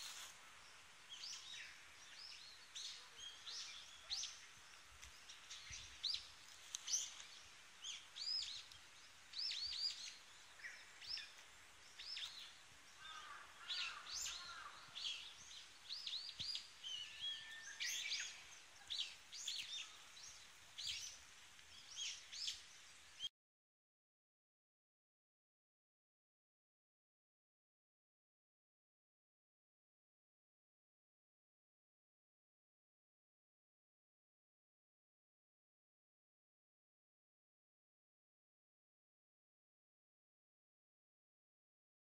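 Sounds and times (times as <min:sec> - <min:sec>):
songbirds chirping: 0:00.0 - 0:23.3.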